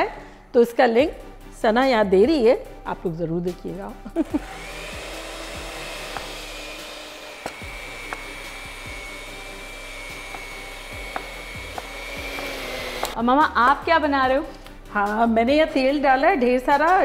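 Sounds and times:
electric hand mixer whine: 4.2s - 13.2s
knife tapping cutting board: 10.3s - 13.2s.

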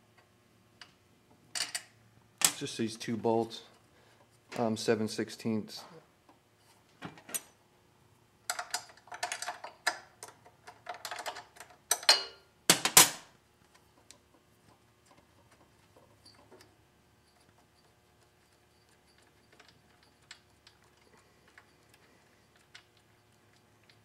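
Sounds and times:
hand tool metal clicks and clatter: 8.5s - 13.2s.

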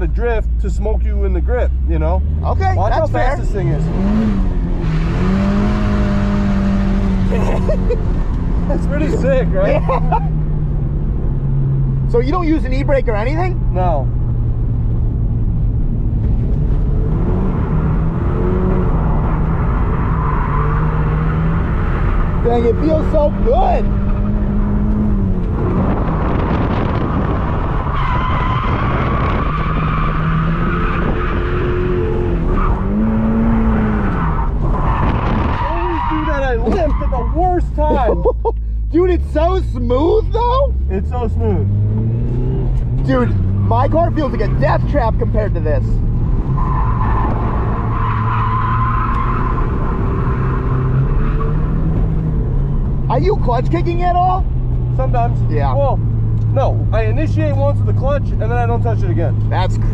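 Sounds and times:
car engine at high revs: 0.0s - 59.9s
tyres squealing: 27.8s - 38.0s.

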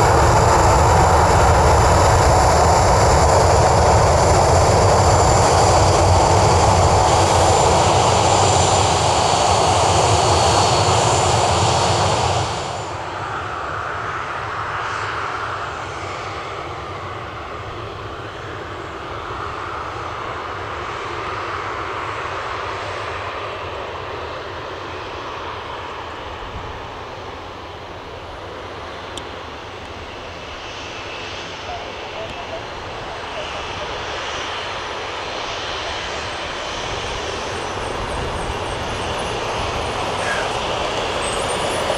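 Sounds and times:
jet engines rumble and whine: 0.0s - 41.9s.

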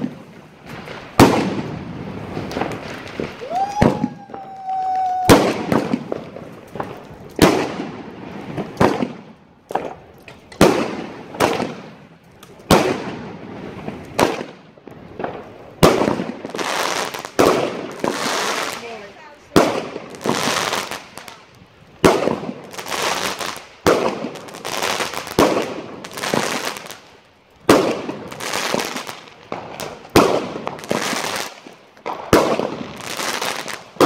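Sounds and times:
fireworks bangs: 0.0s - 34.0s
rising firework whistle: 2.7s - 6.1s.

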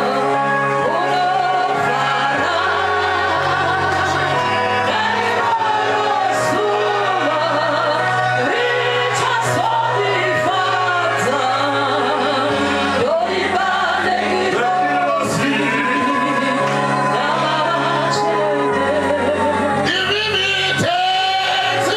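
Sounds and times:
voices singing along: 0.0s - 21.9s
man singing into a microphone: 14.2s - 21.9s.

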